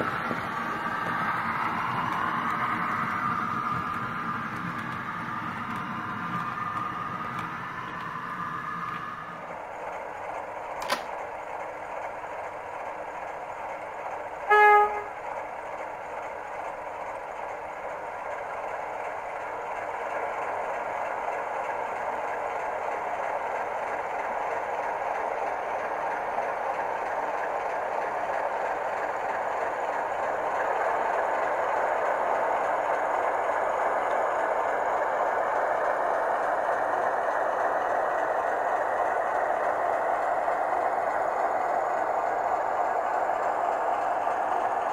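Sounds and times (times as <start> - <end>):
model train motor and wheels: 0.0 - 44.9
sharp click: 10.8 - 11.2
model train horn blast: 14.5 - 15.2.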